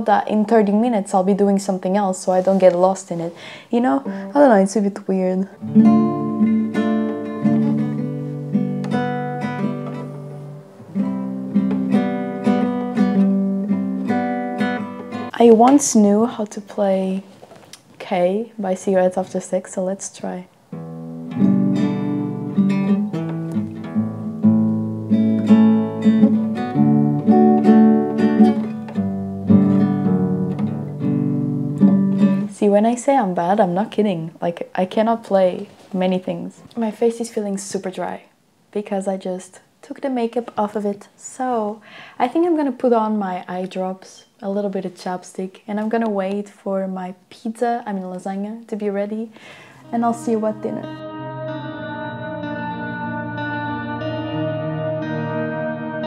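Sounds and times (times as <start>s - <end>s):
acoustic guitar strumming chords: 5.6s - 16.1s, 20.7s - 32.5s, 49.5s - 56.0s.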